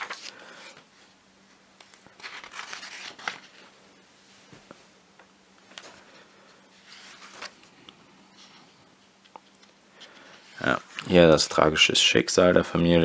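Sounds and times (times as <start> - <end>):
paper pages rustling: 0.0 - 0.8, 1.8 - 3.7, 5.6 - 7.7.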